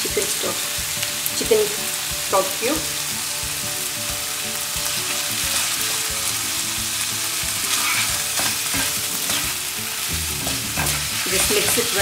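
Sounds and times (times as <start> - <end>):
chicken sizzling in a frying pan: 0.0 - 12.0
wooden spatula scraping a pan: 7.7 - 9.5.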